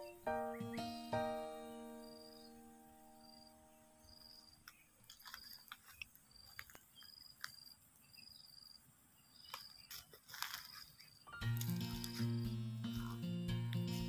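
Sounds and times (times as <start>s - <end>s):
background music: 0.0s - 3.7s, 11.3s - 14.0s
high insect-like chirp: 0.0s - 14.0s
crackles in dry leaves: 4.6s - 7.8s, 9.4s - 14.0s.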